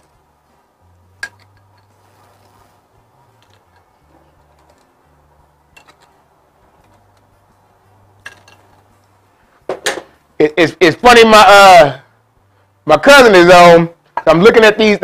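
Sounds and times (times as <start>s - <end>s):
low faint hum: 0.0s - 13.0s
metal tongs clicking and tapping: 1.2s - 1.9s.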